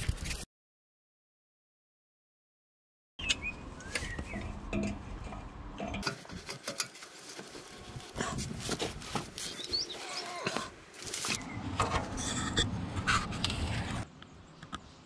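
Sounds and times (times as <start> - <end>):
small birds chirping: 3.2 - 4.6, 9.2 - 10.6.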